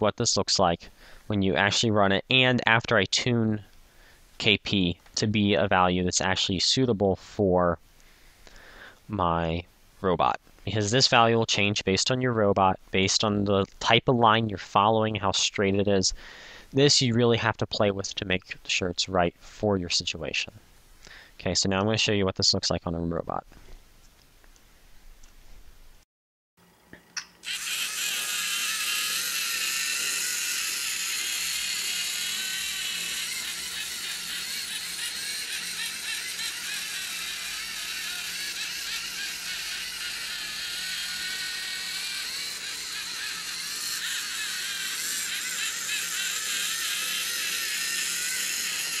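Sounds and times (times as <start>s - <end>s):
servo motors whirring: 27.4s - 49.0s.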